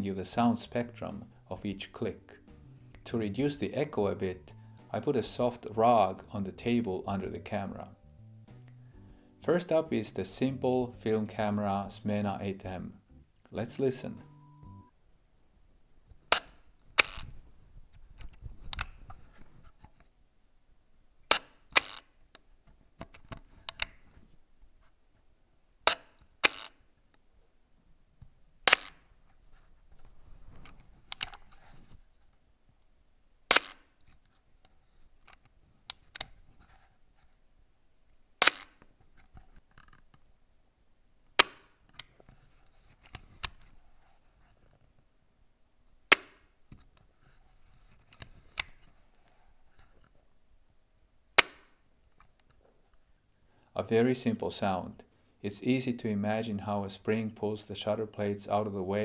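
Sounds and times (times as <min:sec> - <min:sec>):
camera shutter clicking: 0:21.3 - 0:22.0, 0:25.9 - 0:26.7, 0:28.7 - 0:29.0, 0:33.5 - 0:33.8, 0:38.4 - 0:38.7
camera handling clicks: 0:30.7 - 0:31.4, 0:33.5 - 0:33.8, 0:38.4 - 0:38.7.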